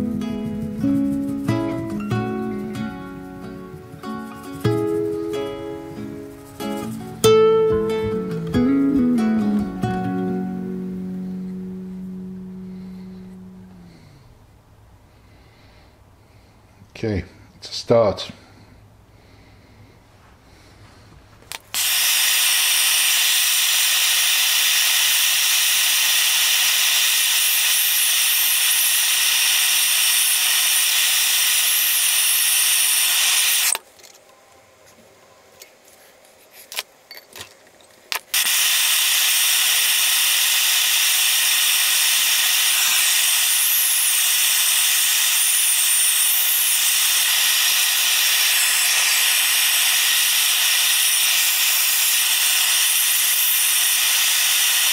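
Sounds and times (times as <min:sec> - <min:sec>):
gas torch hissing: 0:21.5 - 0:33.8, 0:38.3 - 0:54.9.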